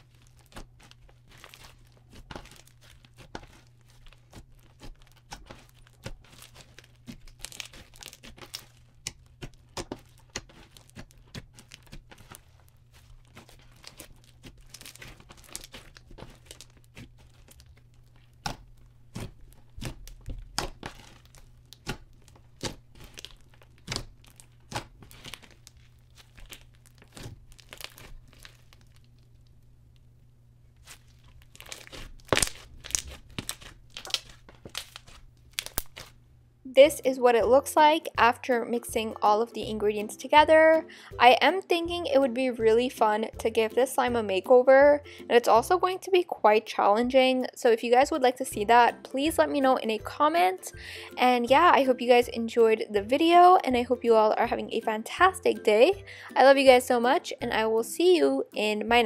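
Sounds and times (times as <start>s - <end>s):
hands squishing sticky slime: 0.0s - 29.4s, 30.8s - 36.2s
slime popping: 0.1s - 29.4s, 30.8s - 36.2s.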